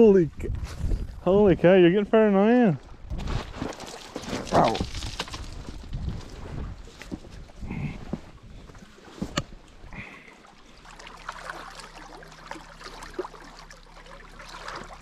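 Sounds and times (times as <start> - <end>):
waves lapping on rocks: 8.7 - 15.0.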